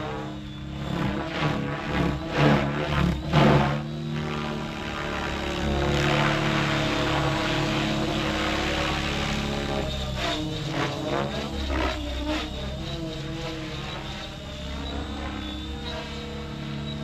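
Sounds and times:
model helicopter rotor whine: 0.0s - 17.0s
rotor swishes: 0.1s - 17.0s.

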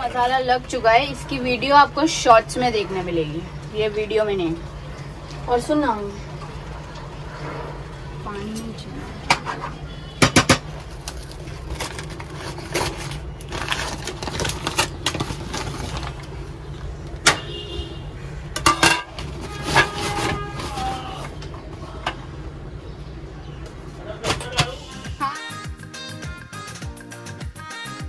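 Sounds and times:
paper bag rustling: 10.6s - 16.5s, 19.1s - 21.4s.

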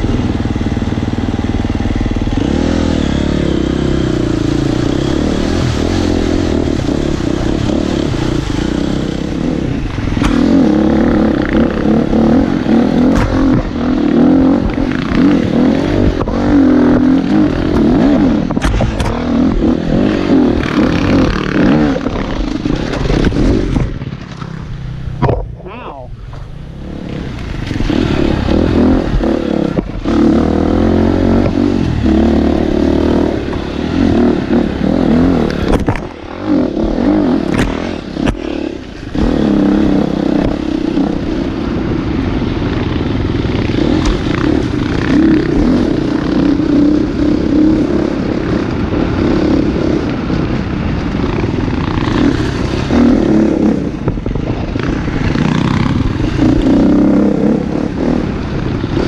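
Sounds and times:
dirt bike engine: 0.0s - 59.0s
knocks and clatter from bike: 16.1s - 19.6s, 22.0s - 25.6s, 35.6s - 36.3s.

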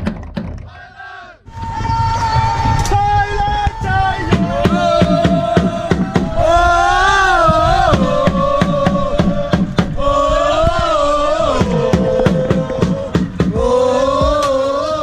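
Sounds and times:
football supporters chanting: 0.6s - 15.0s
drum beaten steadily: 4.3s - 6.4s, 7.5s - 10.0s, 11.5s - 14.5s.

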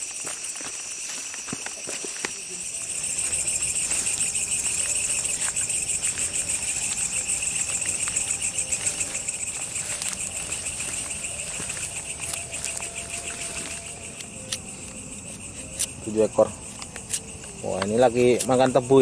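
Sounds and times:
insects calling in pulses: 0.0s - 19.0s.

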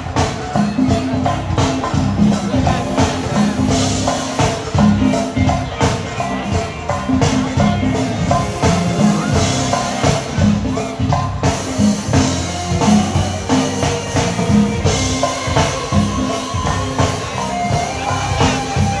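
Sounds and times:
drum kit beat: 0.0s - 19.0s
live band playing: 0.0s - 19.0s.

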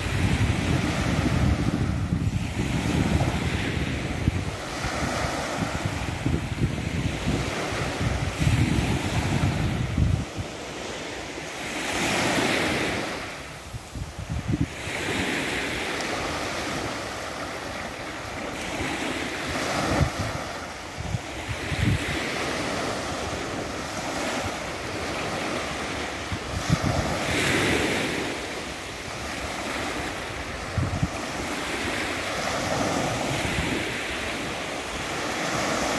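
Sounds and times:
small waves breaking on sand: 0.0s - 35.9s
wind buffeting microphone: 0.0s - 35.9s.

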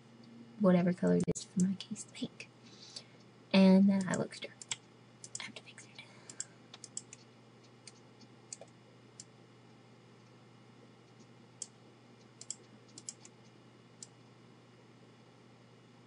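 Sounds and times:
low steady hum: 0.0s - 16.0s
computer mouse clicks: 4.0s - 5.5s, 6.3s - 9.3s, 11.0s - 14.2s.

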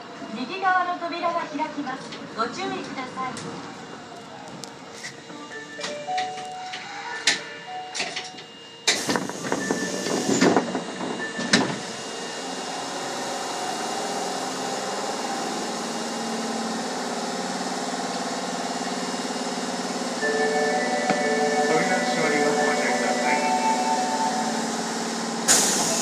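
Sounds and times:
train motors and wheels humming: 0.0s - 26.0s
train doors shutting thud: 5.8s - 11.9s, 25.5s - 26.0s.

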